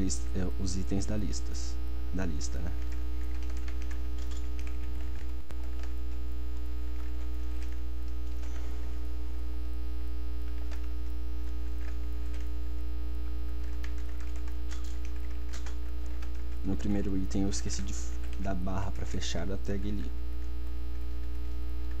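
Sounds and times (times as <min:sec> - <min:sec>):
low electrical mains hum: 0:00.0 - 0:22.0
keyboard typing clicks: 0:02.7 - 0:06.0, 0:07.0 - 0:08.7, 0:10.5 - 0:10.9, 0:11.7 - 0:12.5, 0:13.6 - 0:16.5.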